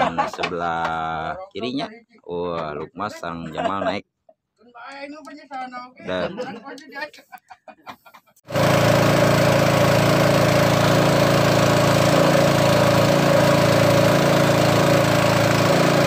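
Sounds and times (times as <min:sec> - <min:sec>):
boat engine droning: 0:08.5 - 0:16.0.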